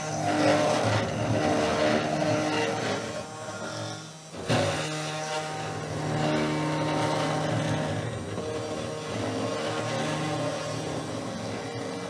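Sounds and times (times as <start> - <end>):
cnc router spindle whine: 0.0 - 12.0.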